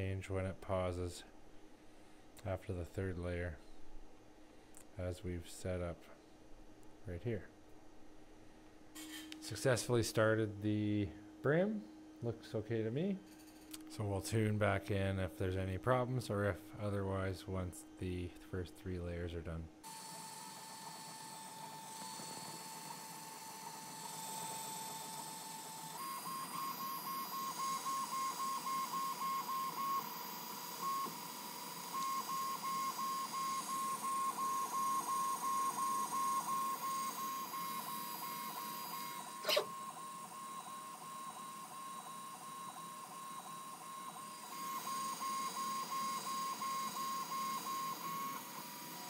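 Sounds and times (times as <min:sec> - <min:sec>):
stepper motors whining: 0:19.9 - 0:40.7.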